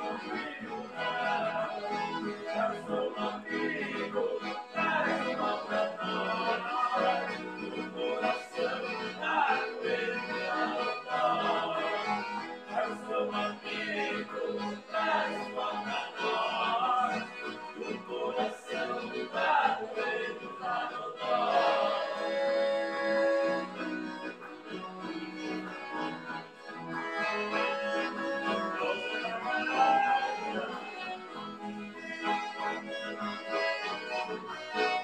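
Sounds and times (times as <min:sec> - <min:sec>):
accordions playing melody: 0:00.0 - 0:35.0
man singing into microphone: 0:28.8 - 0:31.1.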